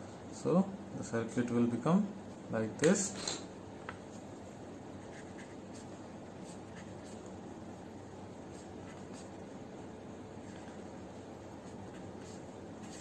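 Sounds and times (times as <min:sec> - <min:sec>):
low background hiss: 0:00.0 - 0:13.0
pen scratching on paper: 0:05.0 - 0:07.3, 0:08.4 - 0:09.4, 0:10.4 - 0:13.0.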